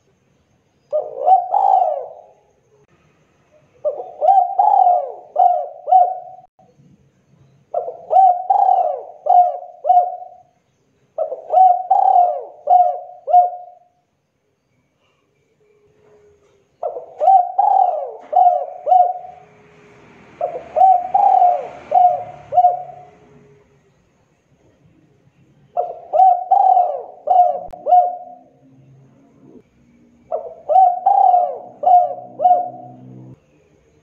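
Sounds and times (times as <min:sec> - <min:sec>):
dove cooing: 0:00.9 - 0:02.6, 0:03.8 - 0:06.5, 0:07.7 - 0:10.5, 0:11.2 - 0:14.0, 0:16.0 - 0:19.6, 0:20.3 - 0:23.7, 0:25.7 - 0:28.7, 0:30.2 - 0:33.4.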